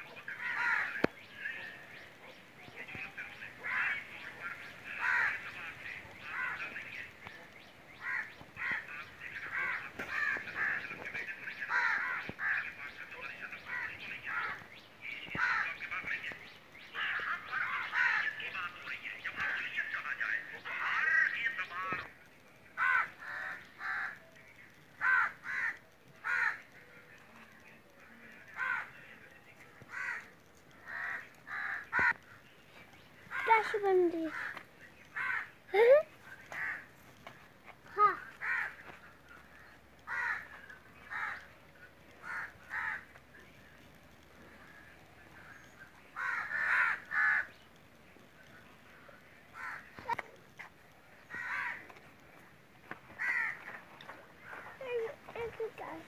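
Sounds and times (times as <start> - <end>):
birds giving harsh calls: 0.0 - 22.2, 22.8 - 26.8, 28.0 - 29.2, 29.8 - 48.3, 49.2 - 56.0
crows cawing: 0.2 - 1.7, 3.6 - 7.2, 8.0 - 13.0, 13.6 - 16.0, 16.8 - 18.6, 20.5 - 22.1, 22.8 - 24.3, 24.9 - 26.7, 28.6 - 29.0, 29.8 - 32.4, 33.3 - 35.6, 36.4 - 36.9, 37.8 - 41.5, 42.2 - 43.2, 45.4 - 47.6, 49.5 - 50.3, 51.2 - 52.2, 53.1 - 54.8.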